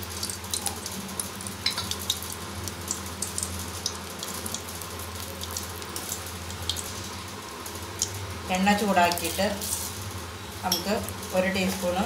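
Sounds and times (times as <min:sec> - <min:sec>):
oil sizzling in a metal pan: 0:00.0 - 0:12.0
small crackles and pops: 0:00.1 - 0:08.2.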